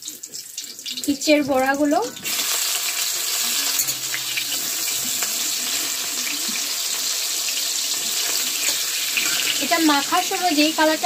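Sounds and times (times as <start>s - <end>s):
fritters sizzling in oil: 0.0s - 11.0s
spatula turning food: 2.2s - 11.0s.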